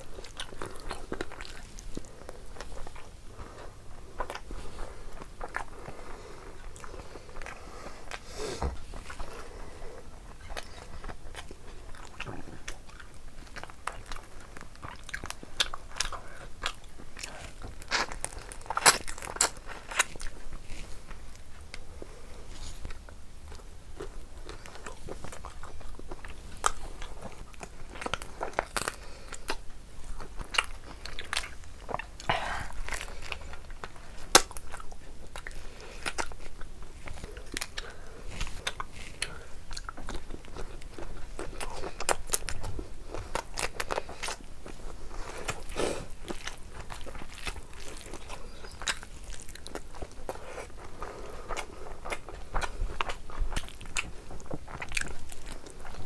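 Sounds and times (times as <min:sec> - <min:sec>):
person chewing crunchy food: 0:00.0 - 0:56.0.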